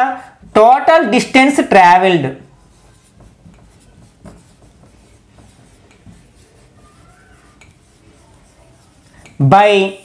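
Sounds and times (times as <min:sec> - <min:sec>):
marker pen writing on whiteboard: 0:00.3 - 0:00.8, 0:02.3 - 0:10.0
thin marker squeak: 0:05.9 - 0:09.3.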